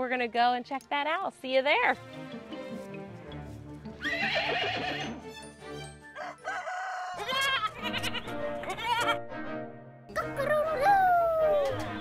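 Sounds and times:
background music: 0.0 - 12.0
goat bleating: 4.0 - 5.2, 7.2 - 9.2
rooster crowing: 6.2 - 7.6.

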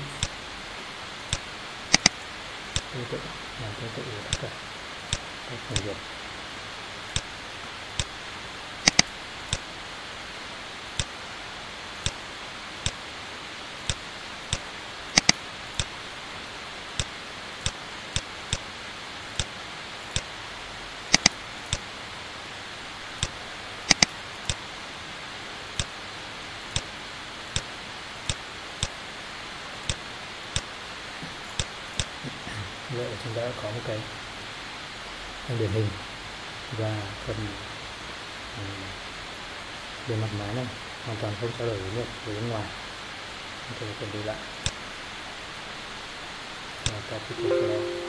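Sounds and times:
steady hiss: 0.0 - 48.0
computer mouse clicking: 1.3 - 2.2, 5.1 - 5.9, 8.0 - 8.2, 8.8 - 9.6, 13.9 - 14.6, 15.2 - 15.9, 21.1 - 21.8, 23.2 - 24.6.

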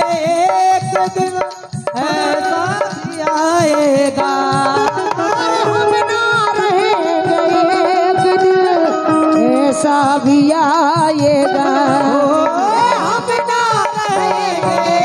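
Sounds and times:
hand drum strokes: 0.0 - 15.0
keyboard accompaniment: 0.0 - 15.0
woman singing into microphone: 0.0 - 15.0.

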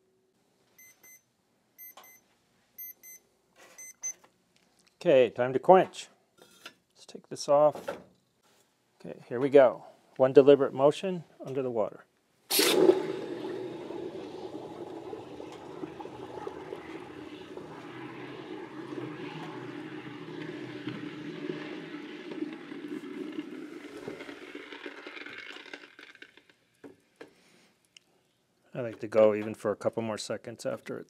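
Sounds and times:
water boiling and bubbling: 12.5 - 26.6.

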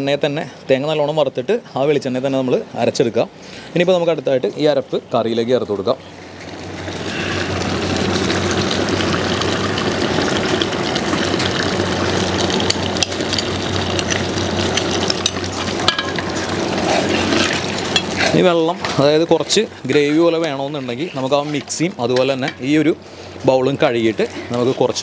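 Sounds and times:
paste sizzling in a pot: 6.4 - 23.9.

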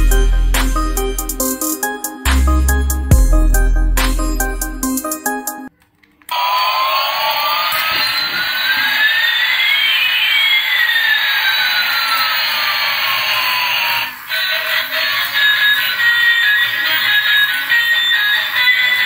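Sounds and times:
toy jet engine sound effect: 6.3 - 19.0.

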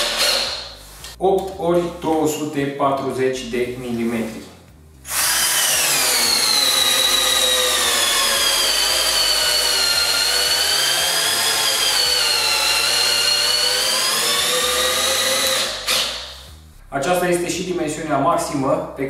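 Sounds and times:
cordless drill motor whining: 5.1 - 16.2.

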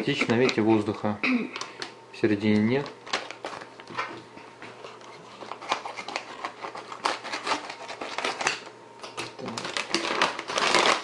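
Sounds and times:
foil crinkling: 2.4 - 4.1, 4.8 - 11.0
scissors snipping foil: 5.6 - 11.0.

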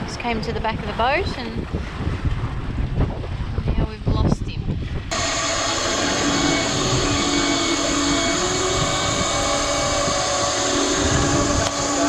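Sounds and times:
fishing reel motor whine: 5.1 - 12.0.

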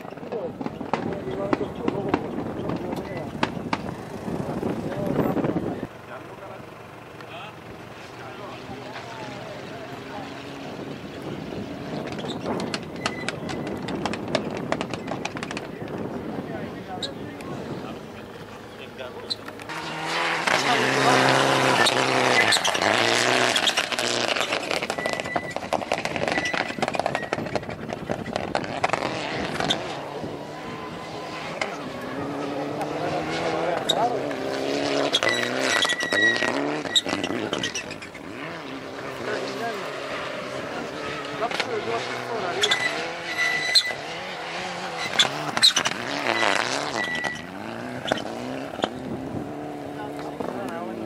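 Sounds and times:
rally car engine at full throttle: 0.0 - 51.0
gravel spraying from tyres: 19.7 - 32.6
sharp cracks: 21.6 - 30.0.

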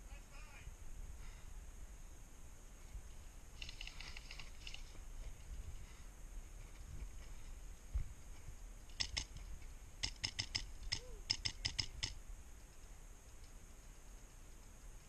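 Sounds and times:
airsoft rifle shots: 8.9 - 9.4, 10.0 - 12.2.

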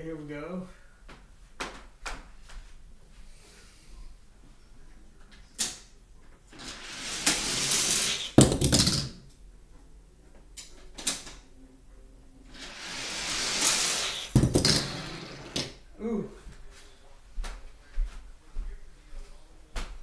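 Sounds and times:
toy car rolling on plastic track: 6.5 - 9.0, 12.5 - 15.7
toy car crashing clatter: 6.6 - 9.2, 12.5 - 15.7.

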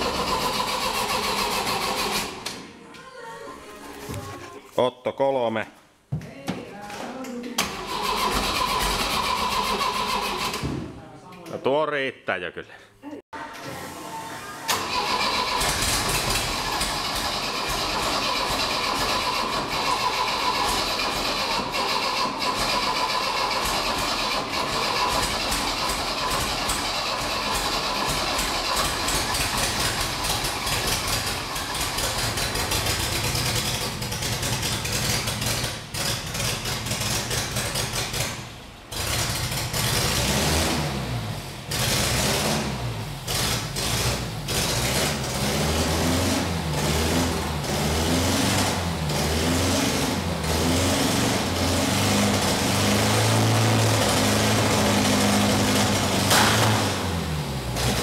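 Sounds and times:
car engine running rough and revving: 0.0 - 2.5, 14.8 - 58.0.

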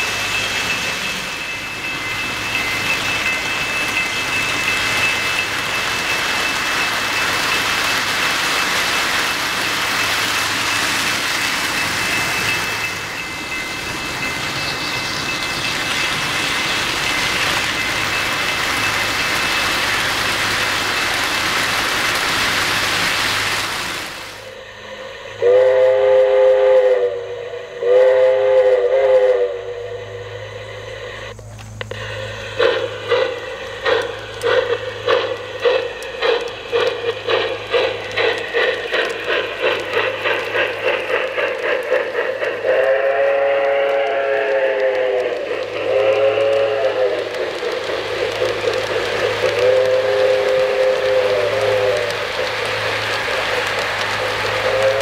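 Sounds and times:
model steam locomotive chuffing: 0.0 - 55.0
model train wheels rolling on track: 0.0 - 55.0
model locomotive whistle blasts: 25.4 - 32.4, 42.6 - 47.4, 49.5 - 52.2, 54.6 - 55.0.

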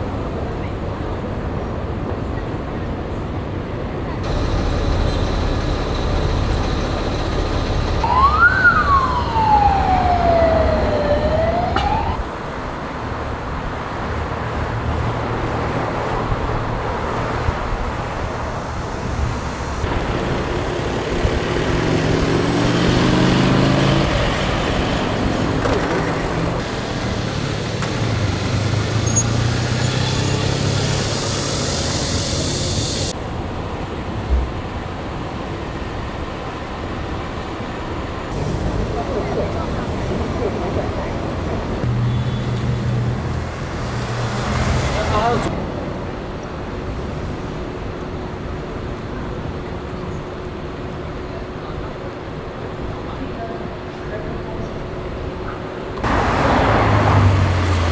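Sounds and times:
street traffic: 0.0 - 57.9
electronic siren wail: 4.4 - 12.2
vehicle engine revving: 19.9 - 25.6, 56.0 - 57.9.

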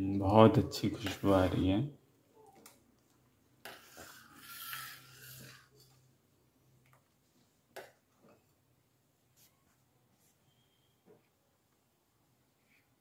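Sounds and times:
spoon scraping a steel pan: 3.7 - 5.9.

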